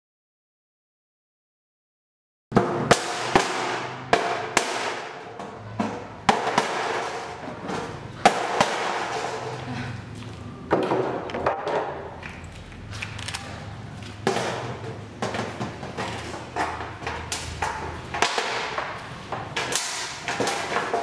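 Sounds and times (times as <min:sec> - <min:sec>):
metal sheet snapping and cracking: 0:19.5 - 0:21.0.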